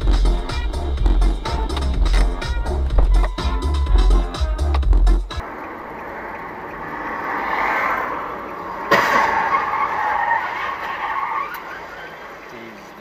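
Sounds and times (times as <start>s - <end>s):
car tyres skidding: 5.4s - 13.0s
car collision crash: 8.8s - 10.9s.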